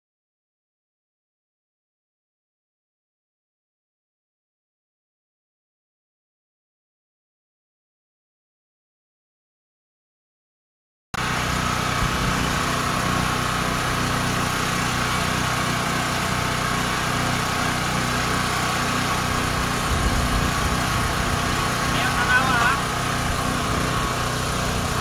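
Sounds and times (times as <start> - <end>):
generator engine running: 11.2 - 25.0.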